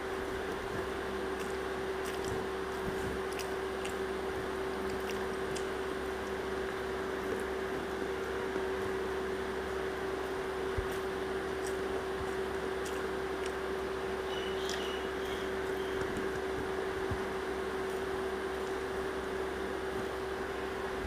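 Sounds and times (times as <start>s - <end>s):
constant hum: 0.0s - 21.0s
wet squishes of food mixed by hand: 0.1s - 19.2s.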